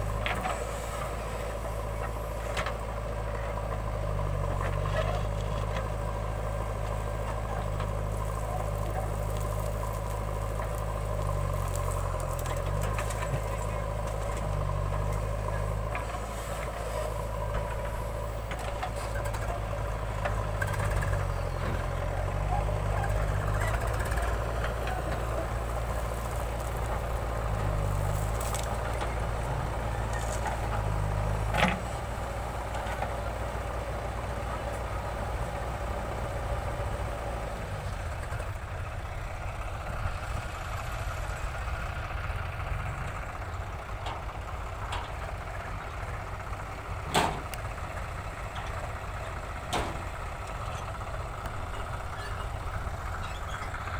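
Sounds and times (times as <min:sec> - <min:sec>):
diesel engine under load: 0:00.0 - 0:53.9
tractor engine running: 0:00.0 - 0:53.9.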